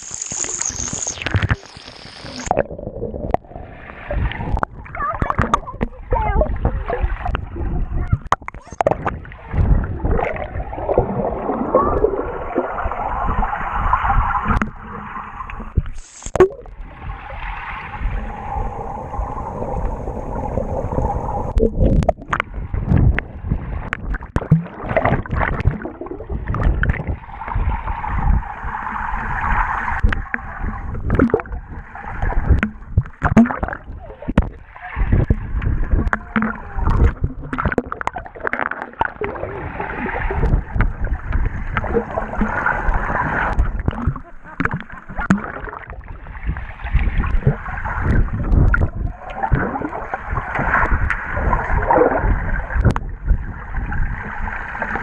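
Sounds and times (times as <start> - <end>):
muffled water gurgling and bubbling: 0.0 - 55.0
water knocks and splashes: 4.1 - 16.8, 20.9 - 55.0.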